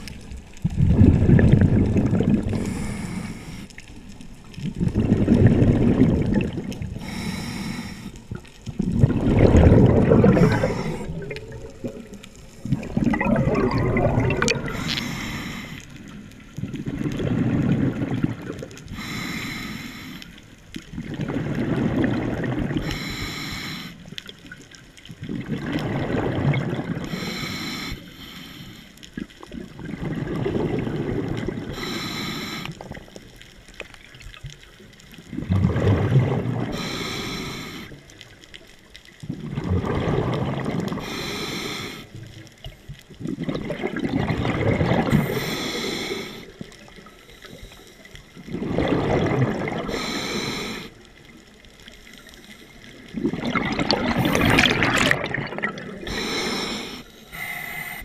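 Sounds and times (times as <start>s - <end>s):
exhaled bubbles rumbling: 0.0s - 19.2s, 20.5s - 23.1s, 24.1s - 27.3s, 29.1s - 32.0s, 32.7s - 41.3s, 42.0s - 57.0s
diver breathing through regulator: 2.5s - 3.8s, 7.0s - 8.3s, 10.2s - 11.4s, 14.5s - 16.0s, 18.9s - 20.4s, 22.8s - 24.0s, 27.0s - 29.0s, 31.6s - 32.9s, 36.6s - 38.0s, 40.9s - 42.2s, 45.1s - 46.6s, 49.8s - 51.0s, 55.7s - 58.0s.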